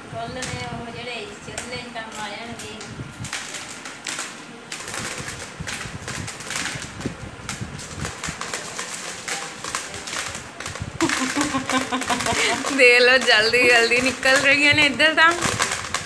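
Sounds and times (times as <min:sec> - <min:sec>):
maize kernels rattling into plastic tub: 0:03.3 - 0:16.0.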